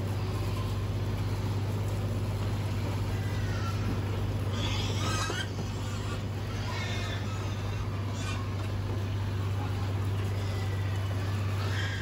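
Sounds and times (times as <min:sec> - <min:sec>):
pigs squealing: 0:02.8 - 0:12.0.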